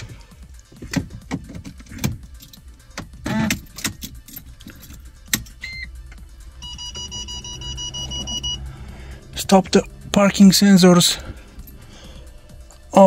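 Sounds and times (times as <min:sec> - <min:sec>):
car keys jangling: 0:00.5 - 0:06.3, 0:11.0 - 0:11.9
parking sensor beeping: 0:03.3 - 0:03.6, 0:05.6 - 0:06.0, 0:06.6 - 0:08.8
short electronic beep: 0:06.6 - 0:08.7.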